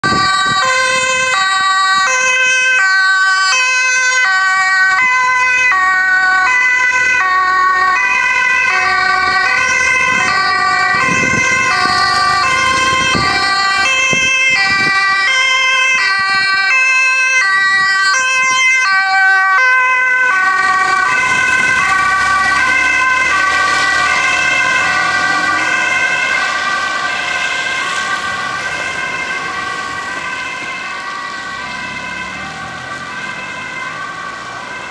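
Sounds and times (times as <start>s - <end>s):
two-tone emergency sirens: 0.0s - 34.9s
tyres hissing on wet road: 21.0s - 30.2s.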